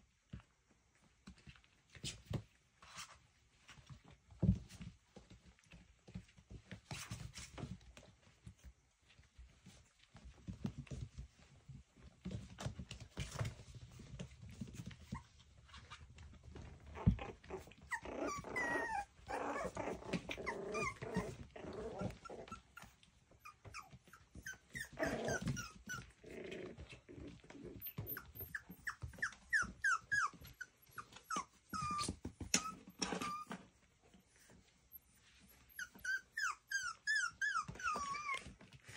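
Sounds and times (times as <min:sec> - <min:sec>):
paws scuffling on blanket: 0:00.2 - 0:38.9
puppies play-growling: 0:01.0 - 0:38.9
puppies yipping and whimpering: 0:16.6 - 0:33.7, 0:34.4 - 0:38.9.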